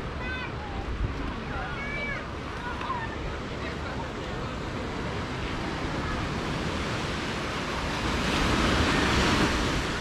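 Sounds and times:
sea surf washing onto beach: 0:00.0 - 0:10.0
wind rumbling on microphone: 0:00.0 - 0:10.0.

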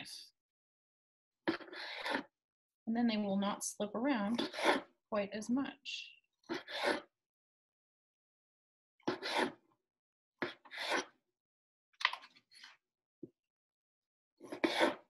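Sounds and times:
knife sawing through tomatoes: 0:01.5 - 0:02.3, 0:04.3 - 0:04.9, 0:06.5 - 0:07.1, 0:09.1 - 0:09.6, 0:10.4 - 0:11.1, 0:14.4 - 0:15.0.

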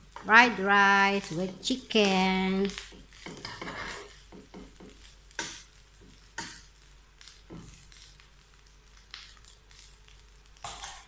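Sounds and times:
spoon scraping frying pan: 0:02.6 - 0:06.7, 0:10.6 - 0:11.0.

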